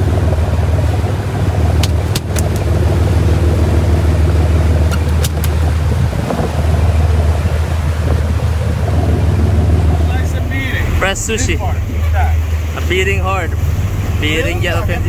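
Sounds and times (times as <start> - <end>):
boat engine droning: 0.0 - 15.0
sharp clicks: 1.8 - 2.7.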